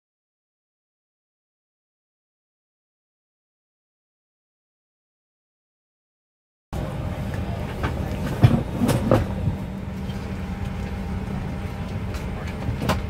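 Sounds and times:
aircraft cabin drone: 6.8s - 13.0s.

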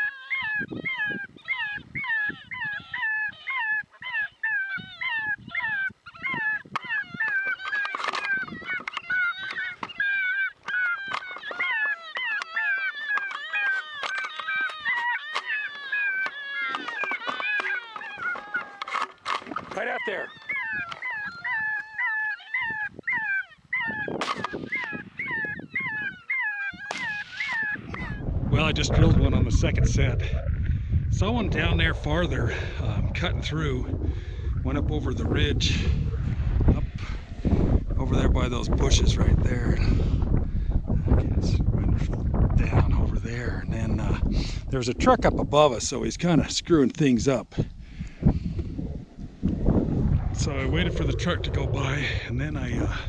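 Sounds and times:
electronic animal cries: 0.0s - 19.2s, 19.8s - 28.2s.

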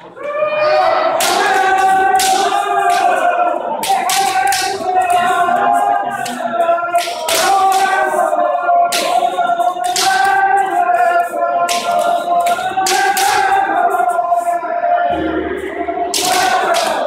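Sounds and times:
people shouting together: 0.0s - 17.0s
bamboo swords striking: 1.2s - 4.8s, 6.2s - 8.1s, 8.9s - 10.6s, 11.7s - 13.8s, 16.1s - 17.0s.

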